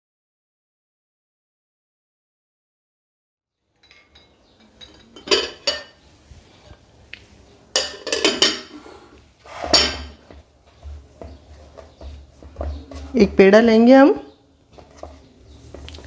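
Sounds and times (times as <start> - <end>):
plate clinking on steel bowl: 3.8 - 6.0, 7.7 - 8.8.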